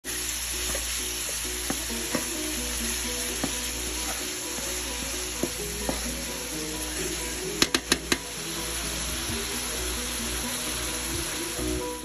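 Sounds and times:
meat sizzling in a hot pan: 0:00.0 - 0:12.0
spatula clicking against pan: 0:07.6 - 0:08.2.

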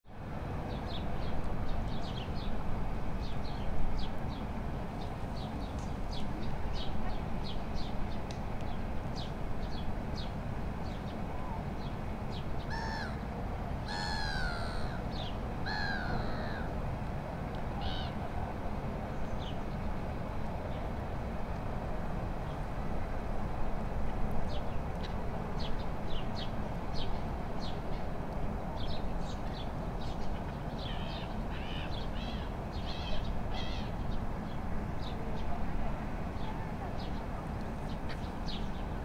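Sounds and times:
large bird harsh calls: 0:12.7 - 0:13.2, 0:13.9 - 0:15.0.

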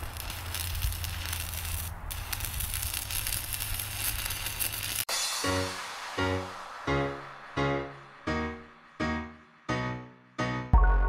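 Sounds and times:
welding arc crackling: 0:00.0 - 0:08.8
intro music: 0:05.1 - 0:11.0.

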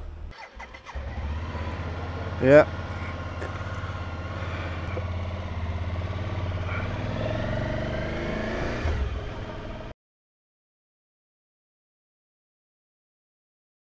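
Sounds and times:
motorcycle engine running: 0:00.0 - 0:09.9.

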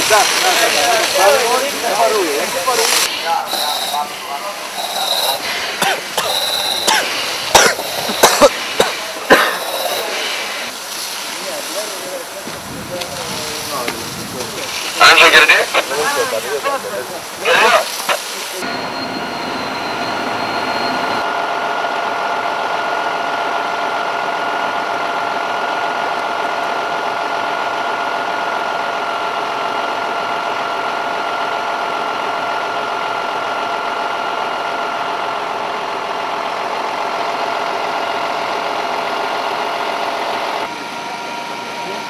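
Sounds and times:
small engine humming: 0:00.0 - 0:10.7.

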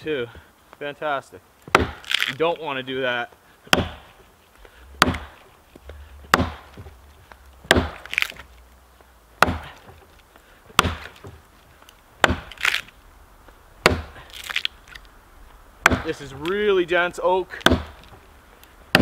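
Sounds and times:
axe chopping log: 0:01.6 - 0:02.4, 0:03.7 - 0:04.2, 0:05.0 - 0:05.5, 0:06.3 - 0:07.0, 0:07.6 - 0:08.5, 0:09.4 - 0:10.1, 0:10.7 - 0:11.4, 0:12.2 - 0:12.9, 0:13.8 - 0:14.7, 0:15.8 - 0:16.6, 0:17.5 - 0:18.2.

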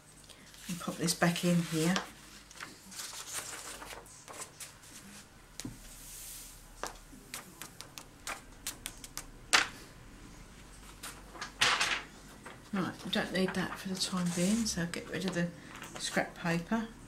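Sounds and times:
paper rustling: 0:00.6 - 0:05.3, 0:13.4 - 0:16.1.

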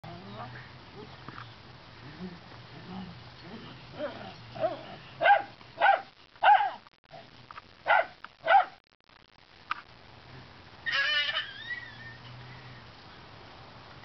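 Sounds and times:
dog barking excitedly: 0:04.6 - 0:06.8, 0:07.9 - 0:08.8
high wavering cry: 0:10.8 - 0:12.3.

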